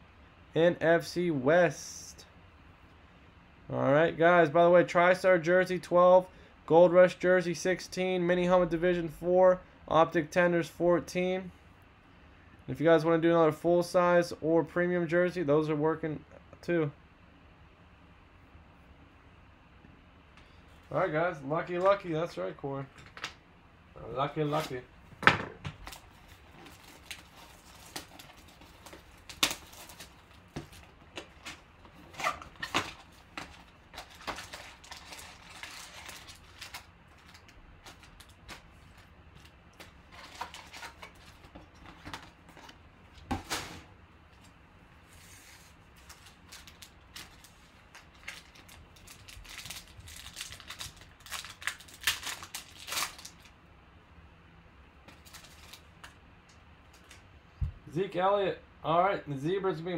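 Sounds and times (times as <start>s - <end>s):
cardboard and plastic wrap rustling: 24.4s - 24.9s, 25.7s - 53.5s, 55.1s - 56.0s
foil pack crinkling and tearing: 25.8s - 42.6s, 45.7s - 53.5s, 55.1s - 56.2s.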